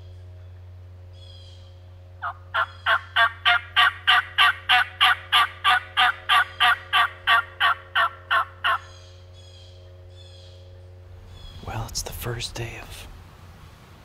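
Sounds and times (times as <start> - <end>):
turkey yelps: 2.2 - 9.0.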